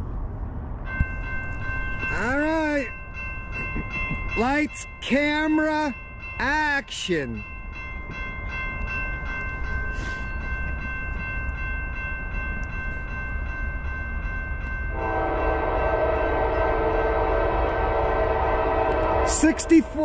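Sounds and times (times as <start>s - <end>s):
train air horn chord: 14.9s - 19.7s.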